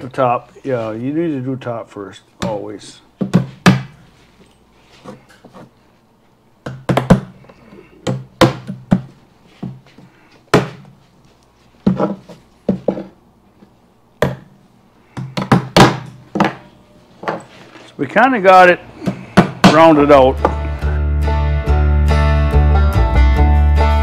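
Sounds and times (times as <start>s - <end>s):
hammer striking nails: 8.0s - 9.1s, 15.2s - 16.6s.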